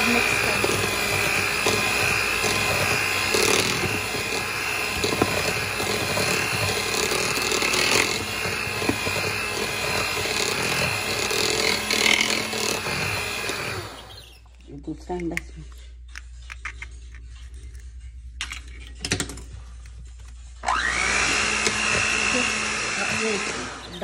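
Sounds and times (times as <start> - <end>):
electric hand mixer whining: 0.0 - 14.4, 20.6 - 24.0.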